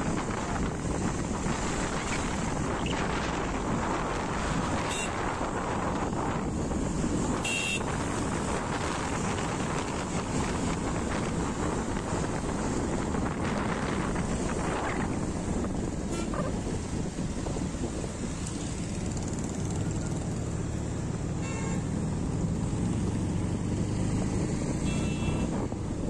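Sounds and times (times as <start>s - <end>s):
wind buffeting microphone: 0.0s - 20.4s
motorcycle engine and road noise: 0.0s - 26.0s.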